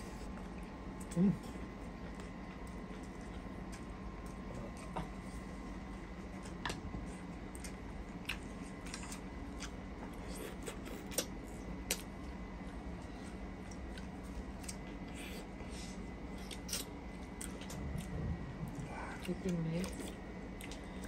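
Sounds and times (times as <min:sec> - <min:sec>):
low hum: 0:11.4 - 0:21.0.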